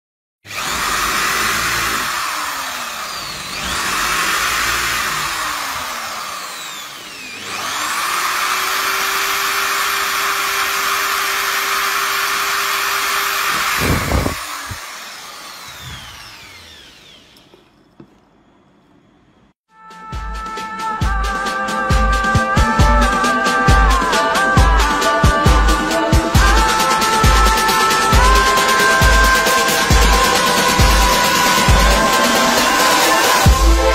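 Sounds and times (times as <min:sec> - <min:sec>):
electric drill boring into wood: 0:00.5 - 0:18.2, 0:26.4 - 0:33.9.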